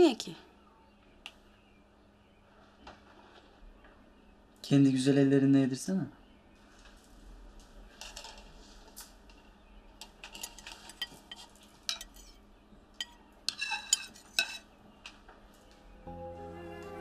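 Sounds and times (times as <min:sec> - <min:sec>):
metal spoon stirring in bowl: 0:10.2 - 0:12.4, 0:13.0 - 0:14.7
spoon clinking bowl: 0:10.4 - 0:12.3, 0:13.0 - 0:14.6.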